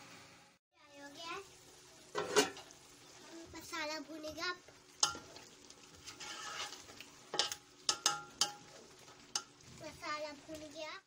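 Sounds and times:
food sizzling in a pot: 0:00.0 - 0:11.0
metal spoon scraping a pot: 0:05.0 - 0:09.6.

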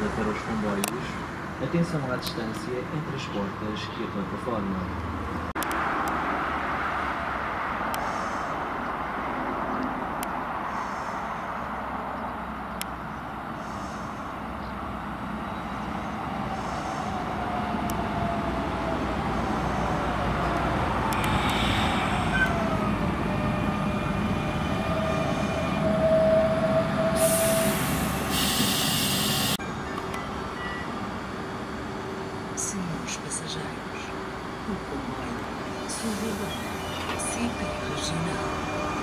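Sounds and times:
train motor whine: 0:21.1 - 0:30.2
air brake hiss: 0:21.2 - 0:22.6, 0:27.2 - 0:29.6.

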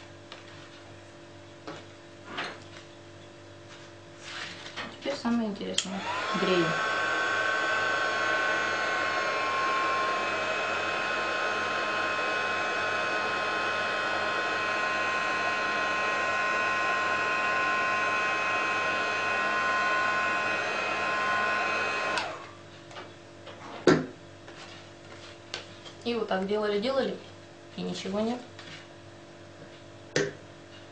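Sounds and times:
heat gun blower whine: 0:05.6 - 0:22.6.

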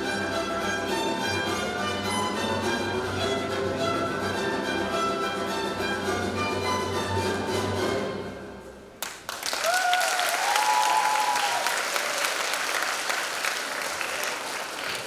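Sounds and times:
audience applause: 0:09.0 - 0:15.0
crowd cheering: 0:09.3 - 0:15.0.

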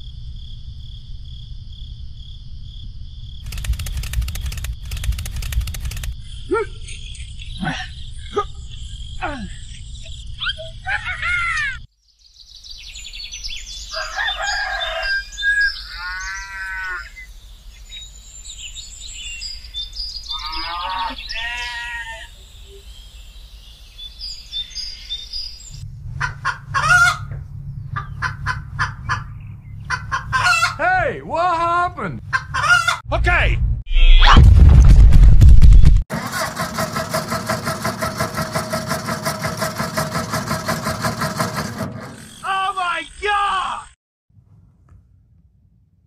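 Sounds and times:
rooster crowing: 0:13.9 - 0:17.2, 0:26.2 - 0:27.4, 0:32.4 - 0:33.0
low steady hum: 0:25.8 - 0:30.0
chicken clucking: 0:26.2 - 0:27.4, 0:28.0 - 0:30.8, 0:32.3 - 0:33.0.

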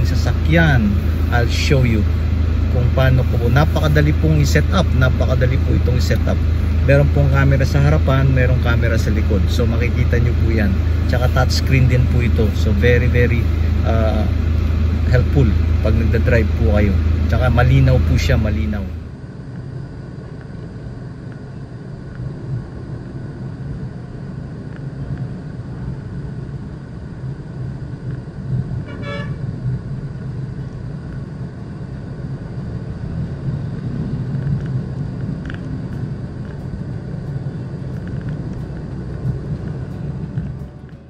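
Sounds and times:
car engine and road rumble: 0:00.0 - 0:41.0
vehicle horn toot: 0:28.8 - 0:29.5.

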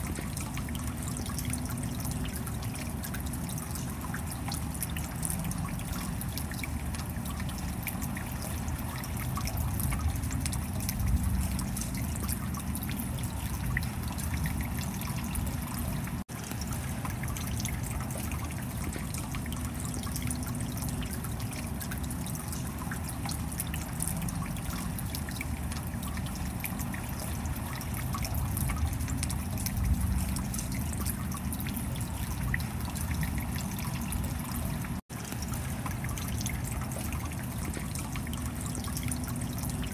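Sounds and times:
stream water splashing over rocks: 0:00.0 - 0:39.9.

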